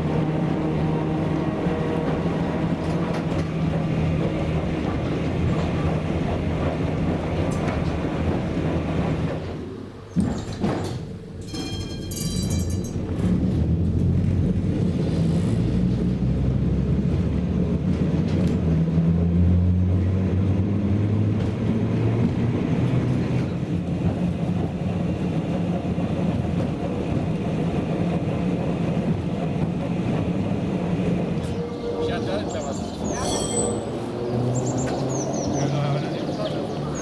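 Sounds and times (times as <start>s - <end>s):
tram running on track: 0.0s - 37.0s
high ringing tone: 11.4s - 13.0s.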